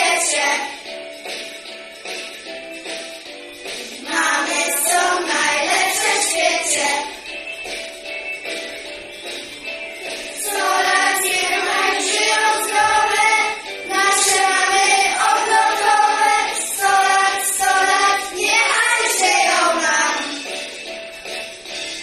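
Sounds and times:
children singing in unison: 0:00.0 - 0:00.8, 0:04.0 - 0:07.2, 0:10.4 - 0:20.5.

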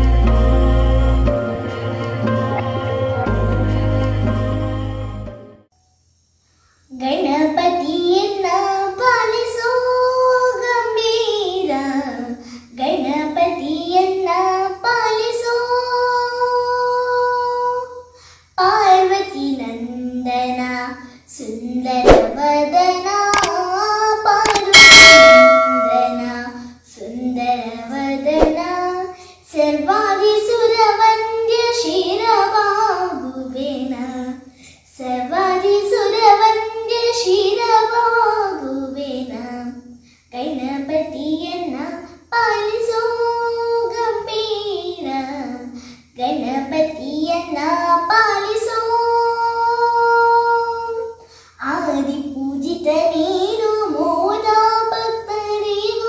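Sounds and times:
girl singing: 0:06.9 - 0:56.0
loud ringing clang: 0:24.5 - 0:26.6.

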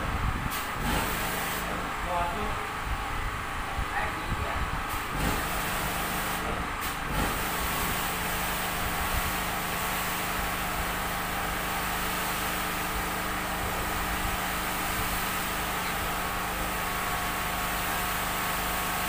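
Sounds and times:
pressure washer humming: 0:00.5 - 0:02.2, 0:04.9 - 0:19.0
water jet hissing: 0:04.9 - 0:19.0.

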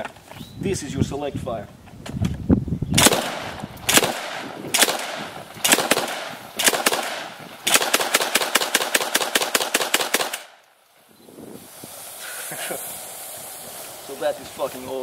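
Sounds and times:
automatic shotgun burst: 0:03.0 - 0:10.6
shotgun single shots: 0:03.0 - 0:10.6.

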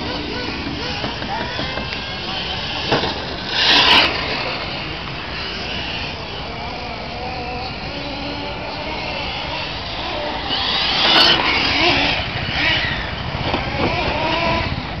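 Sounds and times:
radio-controlled car engines whining: 0:00.0 - 0:15.0.

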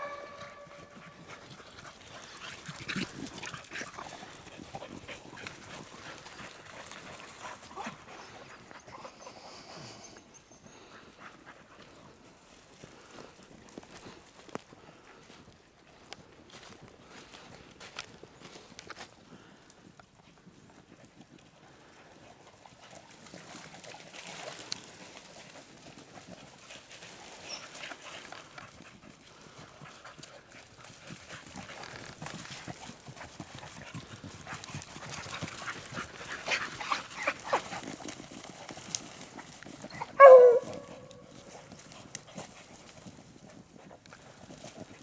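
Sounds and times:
dog barking: 0:00.0 - 0:01.2, 0:40.0 - 0:41.2
dog footsteps in dry leaves: 0:00.0 - 0:08.7, 0:22.6 - 0:45.0.

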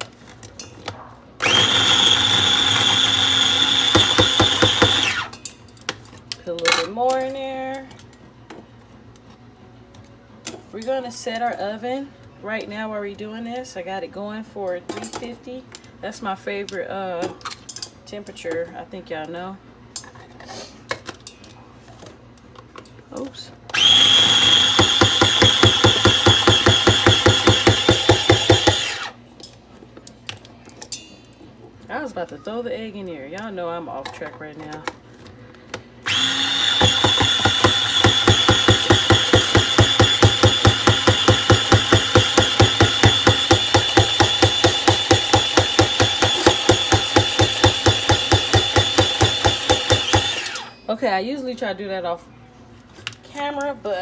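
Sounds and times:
kitchen appliance motor whine: 0:01.4 - 0:05.4, 0:23.7 - 0:29.2, 0:36.0 - 0:50.8.

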